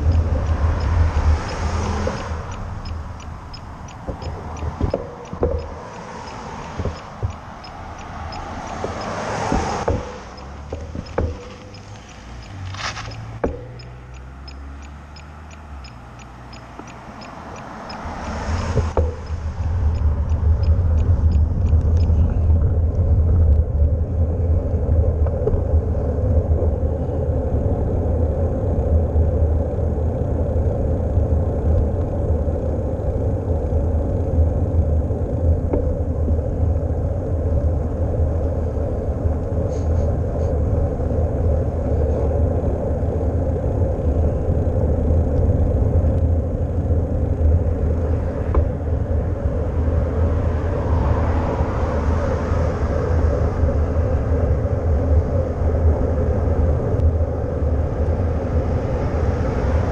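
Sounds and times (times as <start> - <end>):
wind rumble on microphone: 0.0 - 13.8, 16.8 - 59.9
faint ticks: 0.0 - 23.9, 43.9 - 51.4
road and tyre noise: 0.0 - 59.9.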